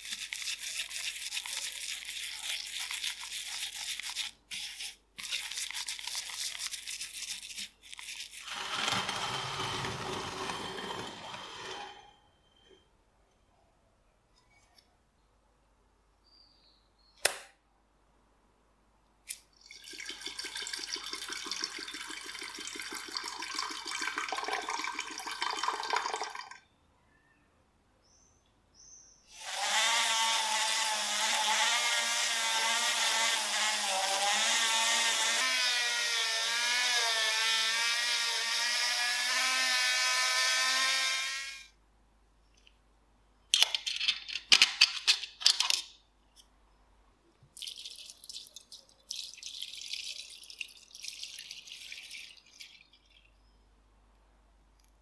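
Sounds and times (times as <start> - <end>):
small electric power tool running: 8.4 - 11.8, 29.3 - 41.7.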